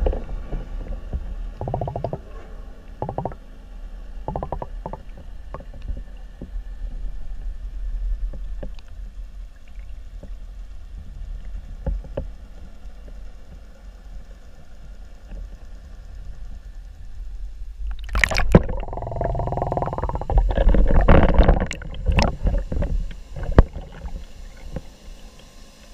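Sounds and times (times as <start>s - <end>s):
muffled underwater rumble: 0.0s - 25.4s.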